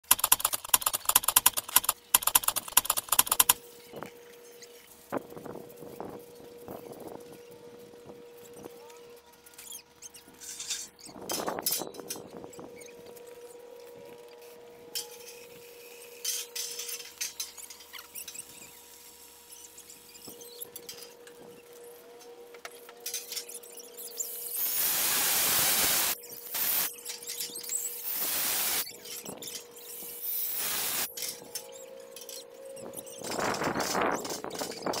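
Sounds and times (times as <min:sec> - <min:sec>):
loud hissing: 0:24.5 - 0:26.9, 0:28.0 - 0:28.8, 0:30.2 - 0:31.1.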